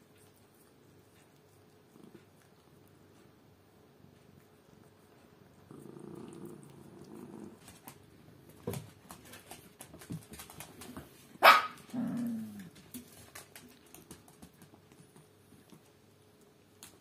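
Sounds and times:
animal growling: 0:05.7 - 0:07.7, 0:12.0 - 0:12.7.

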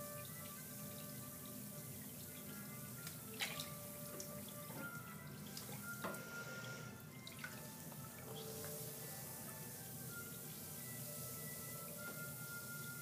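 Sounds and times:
faint steady tones: 0:00.0 - 0:13.0
water splashing: 0:02.0 - 0:06.0.

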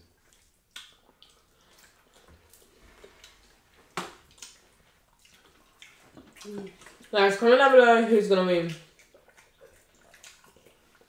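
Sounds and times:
wet eating sounds: 0:00.0 - 0:11.0
mouth smacks: 0:00.2 - 0:04.6, 0:08.7 - 0:11.0.

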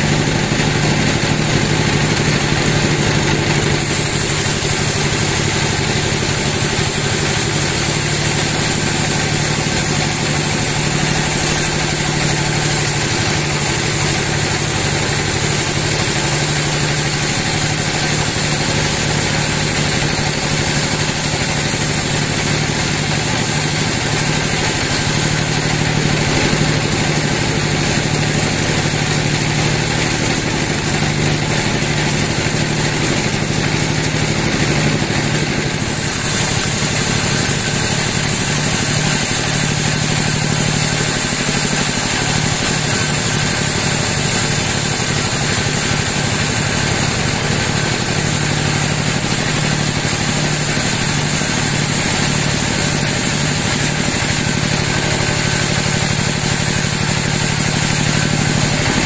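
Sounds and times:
band saw blade sawing timber: 0:00.0 - 0:59.0
mill motor drone: 0:00.0 - 0:59.0.

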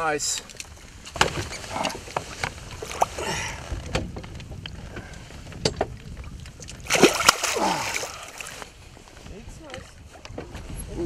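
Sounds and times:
soft water sounds: 0:00.0 - 0:11.0
fish splashing in water: 0:06.7 - 0:08.6.

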